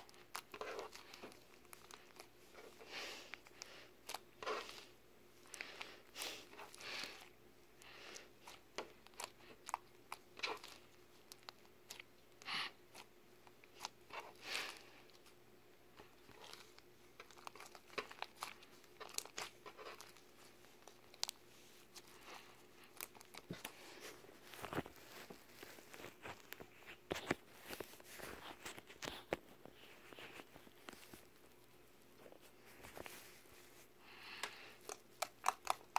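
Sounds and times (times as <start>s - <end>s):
slime sticky clicks and crackles: 34.8s - 35.9s.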